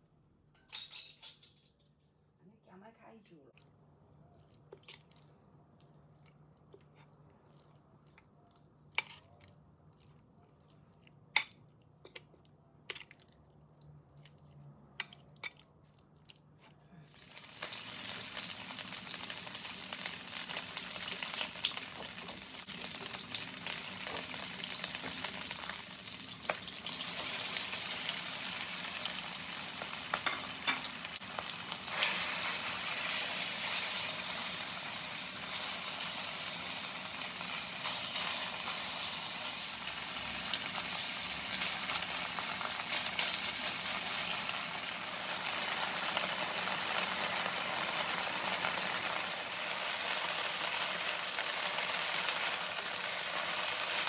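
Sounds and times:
oil sizzling in wok: 17.1s - 54.0s.

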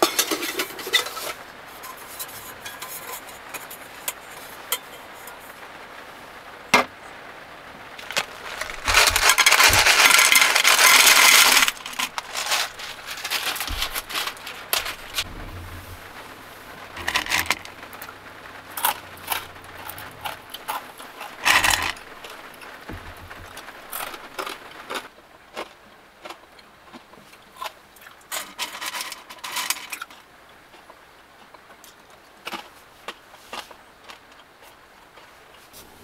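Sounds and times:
fingers rummaging through dried fish: 8.0s - 15.2s.

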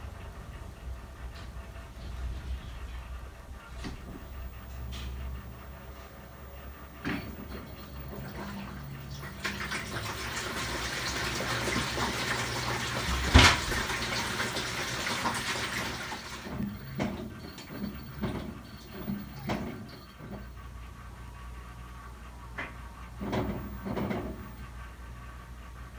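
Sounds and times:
water sloshing in washer tub: 7.0s - 20.4s.

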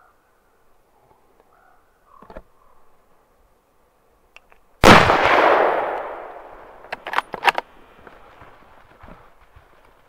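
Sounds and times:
rifle shot: 4.8s - 7.2s.

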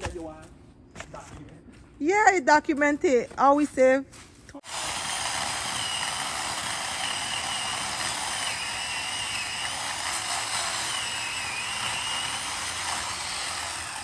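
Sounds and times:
chainsaw cutting wood: 4.6s - 14.0s.

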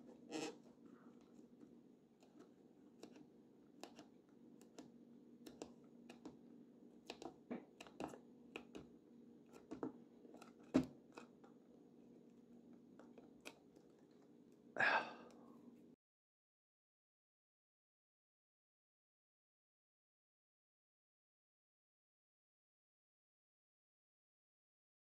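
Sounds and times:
fingers scratching on metal: 0.0s - 0.7s.

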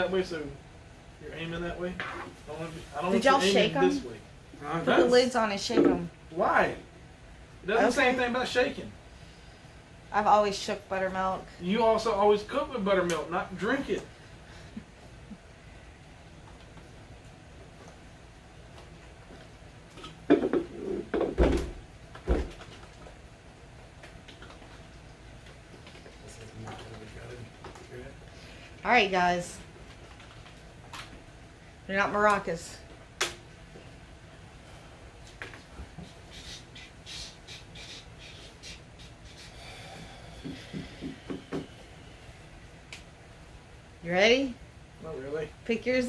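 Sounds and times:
plastic jugs knocking on wooden table: 20.3s - 21.7s.

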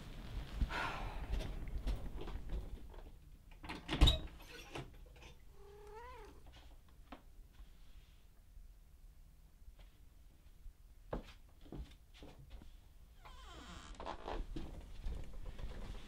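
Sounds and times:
cat meowing: 5.6s - 6.4s.

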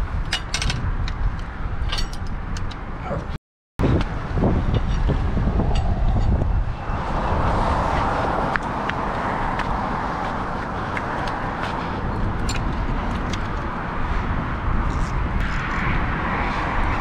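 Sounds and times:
road traffic noise: 0.0s - 17.0s
wind rumbling on microphone: 0.0s - 17.0s.

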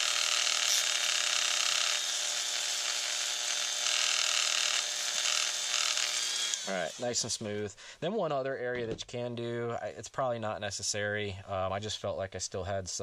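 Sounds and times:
rotary tool motor whine: 0.0s - 7.2s.

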